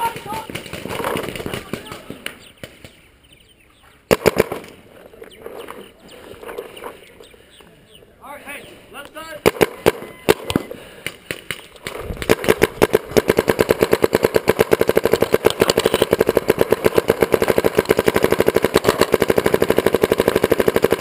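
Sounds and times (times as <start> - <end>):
paintball marker firing rapidly: 0.0 - 3.0, 4.1 - 4.8, 9.4 - 21.0.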